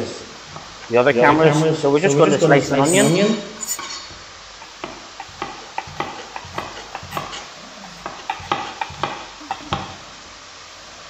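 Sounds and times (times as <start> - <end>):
steak sizzling in a pan: 0.0 - 11.0
knife chopping on wooden board: 4.6 - 10.0.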